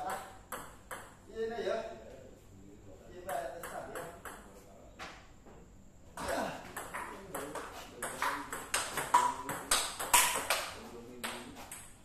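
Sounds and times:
table tennis ball clicking: 0:08.1 - 0:12.0.

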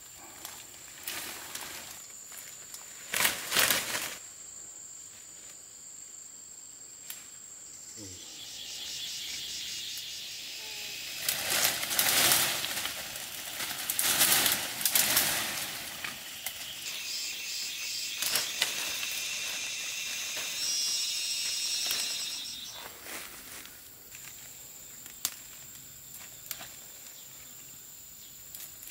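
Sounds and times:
leafy vines rustling: 0:00.0 - 0:04.4, 0:09.8 - 0:27.6
insects trilling: 0:00.0 - 0:28.9
stems snapping: 0:02.3 - 0:04.2, 0:11.2 - 0:16.9, 0:18.2 - 0:19.2, 0:25.0 - 0:26.8.

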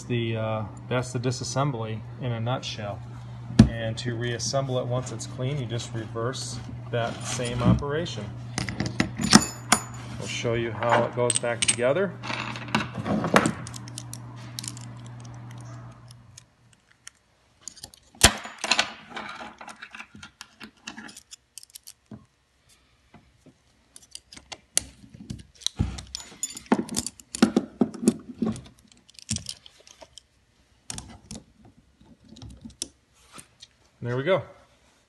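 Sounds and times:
metal valve parts clinking: 0:08.6 - 0:10.1, 0:10.8 - 0:13.0, 0:13.6 - 0:22.1, 0:25.3 - 0:27.4, 0:28.5 - 0:30.3.

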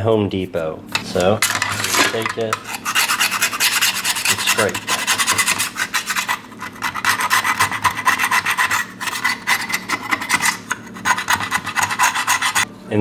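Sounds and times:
razor blade scraping metal: 0:01.0 - 0:12.7.

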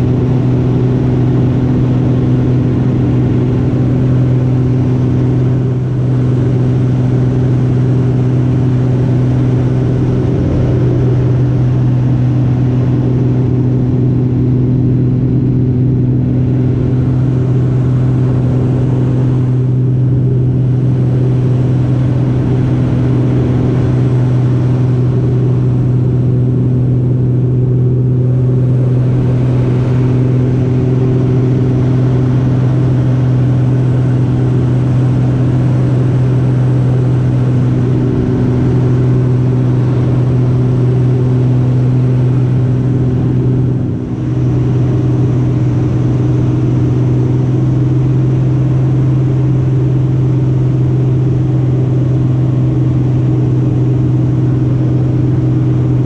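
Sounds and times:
biplane engine and propeller drone: 0:00.0 - 0:56.0
rushing air: 0:07.1 - 0:26.1.

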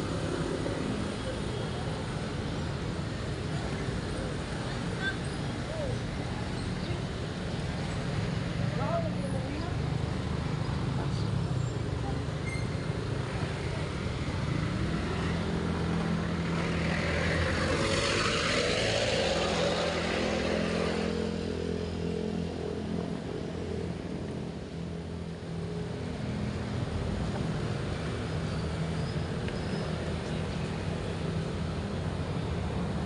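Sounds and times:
street traffic engines: 0:00.0 - 0:33.0
vehicle passing close: 0:14.6 - 0:23.6.

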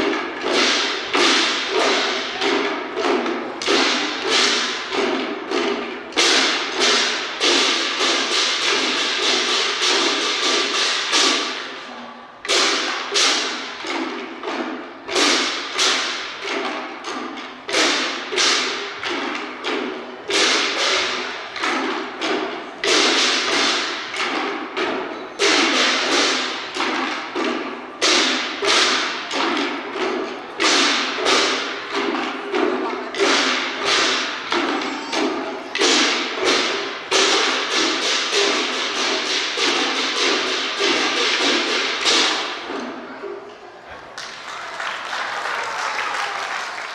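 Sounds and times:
drums beaten with sticks: 0:00.0 - 0:43.5.

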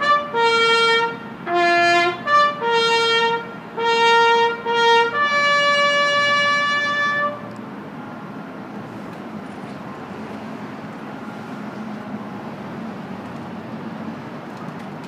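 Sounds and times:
brass horn bugle call: 0:00.0 - 0:07.5.

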